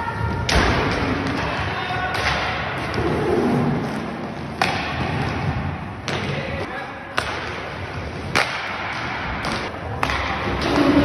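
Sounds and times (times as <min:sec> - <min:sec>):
background din in a hall: 0:00.0 - 0:11.0
hockey stick and puck knocks: 0:08.3 - 0:10.9.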